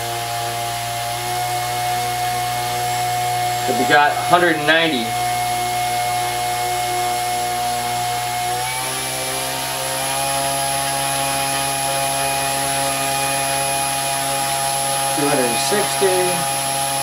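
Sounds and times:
electric motor whine: 0:00.0 - 0:17.0.

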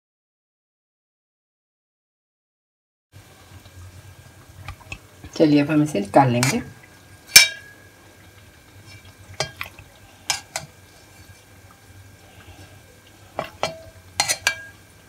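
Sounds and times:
metal spoon clinking on steel pot: 0:07.3 - 0:07.7, 0:13.4 - 0:14.8.

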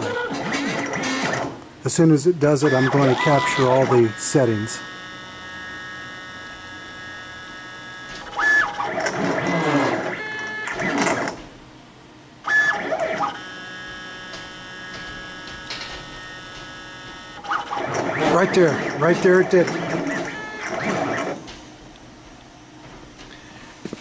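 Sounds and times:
steady electrical hum: 0:00.0 - 0:24.0
stepper motors whining: 0:02.5 - 0:11.4, 0:12.5 - 0:21.6.

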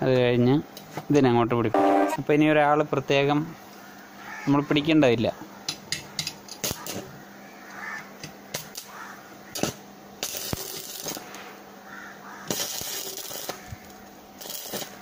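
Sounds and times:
arc welder crackling hiss: 0:06.5 - 0:15.0.

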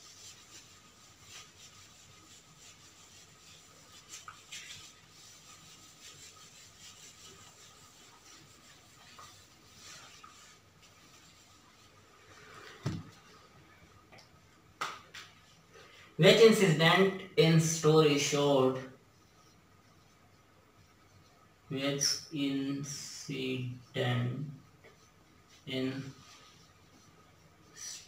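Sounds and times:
marker pen on whiteboard: 0:00.0 - 0:28.0.

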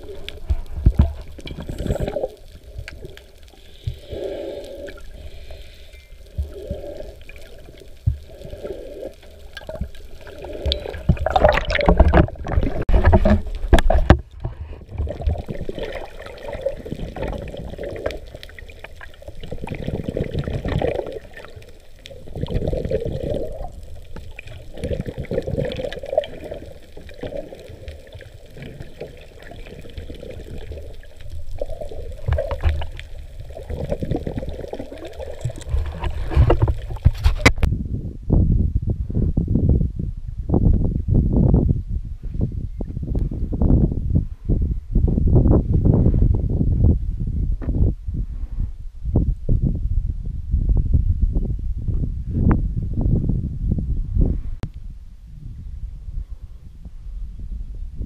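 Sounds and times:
muffled underwater rumble: 0:00.0 - 0:58.0
rushing water splash: 0:06.5 - 0:14.2, 0:14.9 - 0:37.6.

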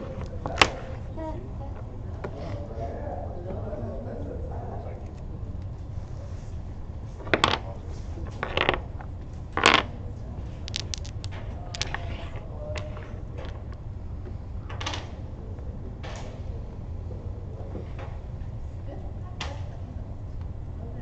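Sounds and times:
domino tiles clacking on wooden table: 0:00.0 - 0:00.9, 0:07.2 - 0:09.9, 0:10.6 - 0:13.8
light domino clicks: 0:09.6 - 0:09.9, 0:10.6 - 0:13.8.

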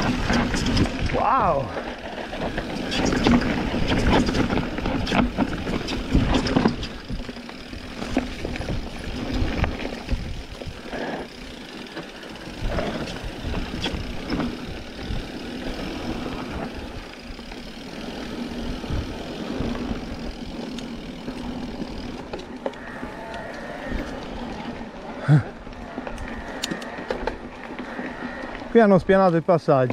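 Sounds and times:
bike knocks and rattles: 0:00.0 - 0:24.2.

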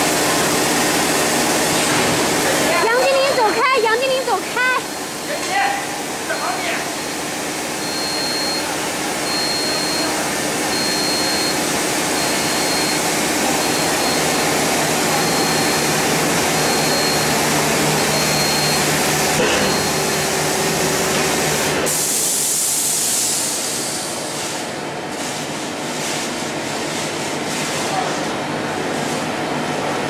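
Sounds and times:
packaging machinery running: 0:00.0 - 0:30.0.

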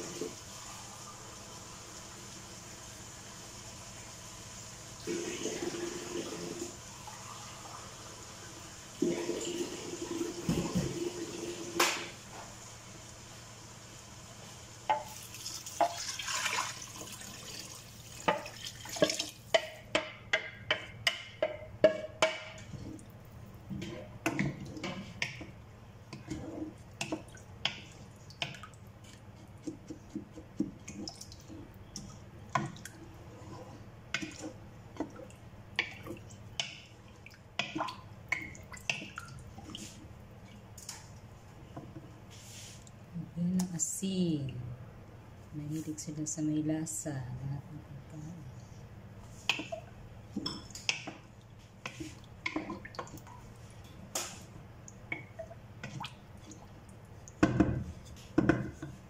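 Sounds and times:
water sound: 0:14.3 - 0:44.6, 0:46.2 - 0:59.0
wooden spatula scraping pot: 0:26.1 - 0:28.1, 0:33.1 - 0:34.6.

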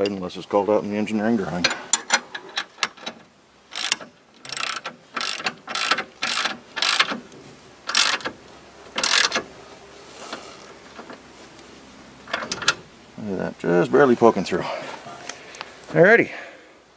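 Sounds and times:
socket ratchet clicking: 0:03.7 - 0:07.2, 0:07.9 - 0:08.3, 0:09.0 - 0:09.4.

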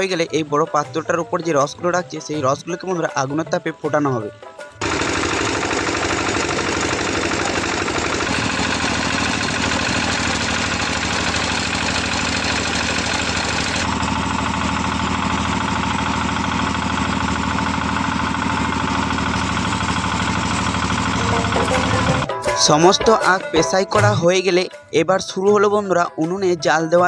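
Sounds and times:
sugarcane crusher running: 0:04.8 - 0:22.3.

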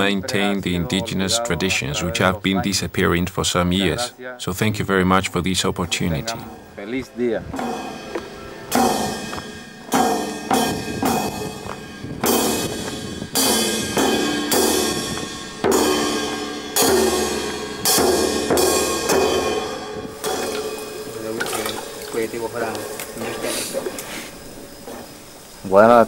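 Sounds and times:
music with strummed beat: 0:07.1 - 0:21.2.

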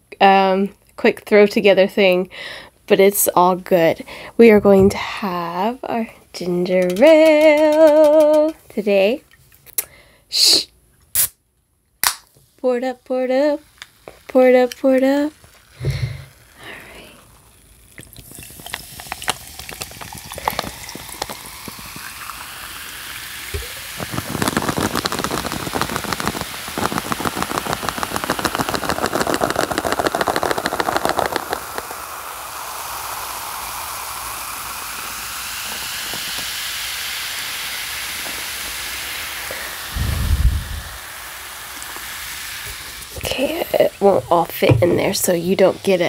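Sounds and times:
soda fizzing in a glass: 0:13.5 - 0:46.0
liquid pouring over ice: 0:15.3 - 0:39.7.

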